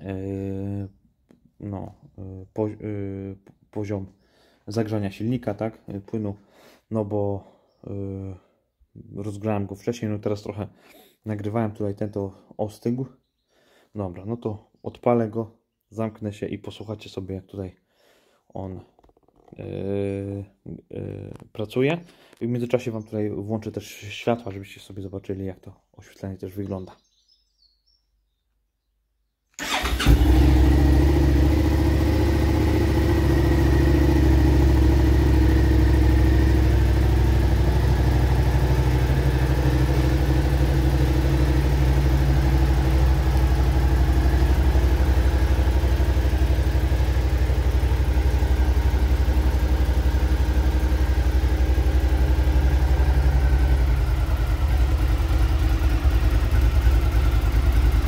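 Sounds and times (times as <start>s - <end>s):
motorcycle engine starting and idling: 29.6s - 58.0s.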